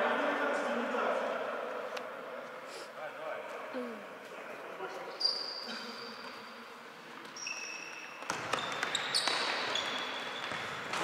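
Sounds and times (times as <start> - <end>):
indoor hall noise: 0.0 - 11.0
shoes squeaking on floor: 5.0 - 6.5, 7.1 - 11.0.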